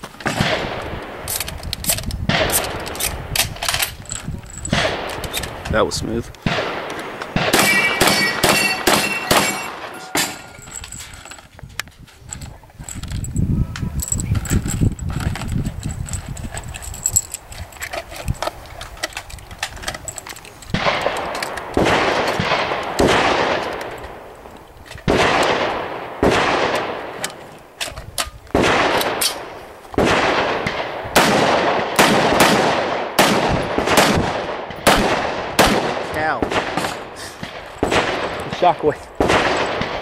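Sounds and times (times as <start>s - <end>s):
single gunshots: 6.4s - 10.5s, 20.7s - 23.8s, 25.1s - 27.2s, 28.5s - 40.0s.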